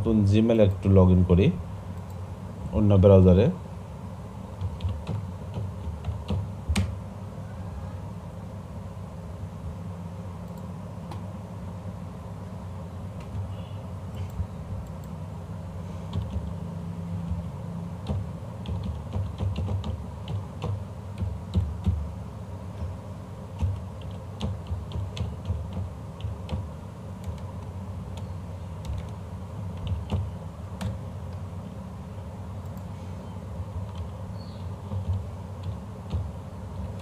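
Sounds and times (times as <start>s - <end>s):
steady low hum: 0.0s - 37.0s
computer keyboard typing: 4.6s - 7.0s, 16.1s - 16.6s, 17.2s - 22.1s, 23.6s - 31.0s, 33.7s - 34.2s, 34.8s - 37.0s.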